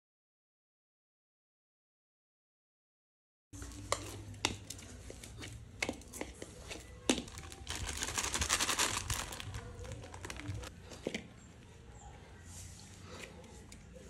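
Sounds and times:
dough kneaded in metal bowl: 3.6s - 11.5s
plastic packet crinkling: 7.2s - 10.7s.

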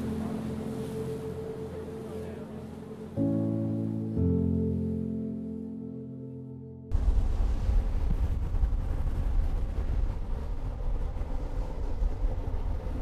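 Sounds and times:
rushing water from wake: 0.0s - 3.2s
outboard engine drone: 0.0s - 13.0s
wind buffeting microphone: 6.9s - 13.0s.

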